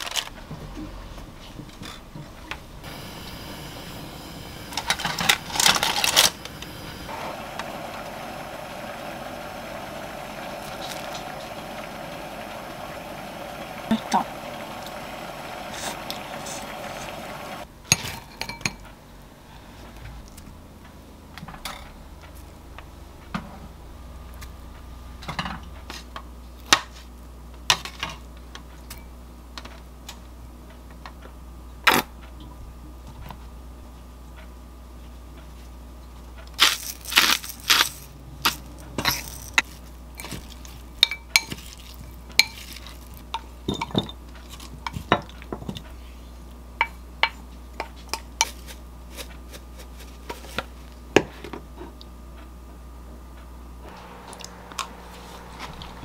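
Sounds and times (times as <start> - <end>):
faint steady hum: 0.0 - 56.0
utensils clinking against bowls: 9.9 - 18.9, 36.6 - 45.8.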